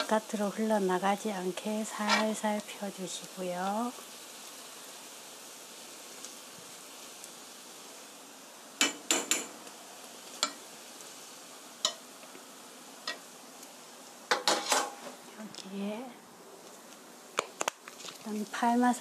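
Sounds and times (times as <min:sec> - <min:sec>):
pancake sizzling softly: 0:00.0 - 0:19.0
spoon tapping frying pan: 0:08.8 - 0:09.6, 0:10.3 - 0:10.6, 0:11.8 - 0:12.4, 0:13.0 - 0:13.3, 0:14.3 - 0:14.9.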